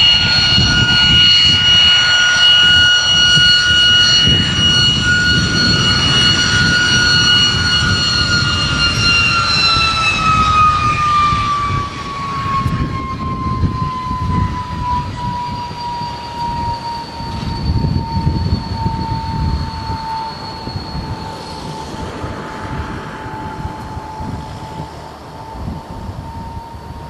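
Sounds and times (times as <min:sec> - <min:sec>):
jet engine whine and rumble: 0:00.0 - 0:27.0.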